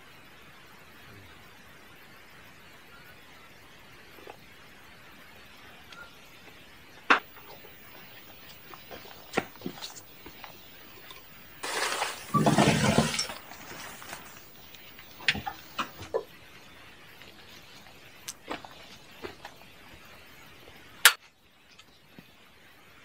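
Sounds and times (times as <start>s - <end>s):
camp gear clinking and knocking: 7.2s - 16.2s
tarp rustling: 7.3s - 16.1s.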